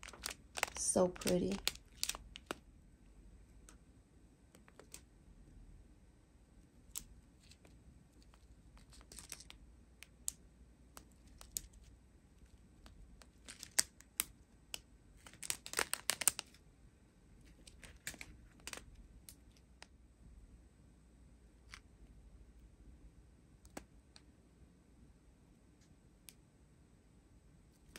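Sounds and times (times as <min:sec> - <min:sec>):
plastic bags crinkling: 0:00.0 - 0:02.6, 0:07.4 - 0:09.6, 0:13.3 - 0:13.9, 0:15.2 - 0:16.6, 0:17.5 - 0:19.0.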